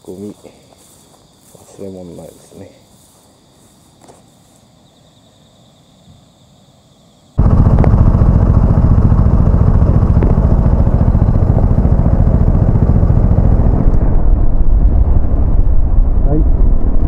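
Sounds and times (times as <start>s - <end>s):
motorcycle engine running: 7.4s - 14.6s.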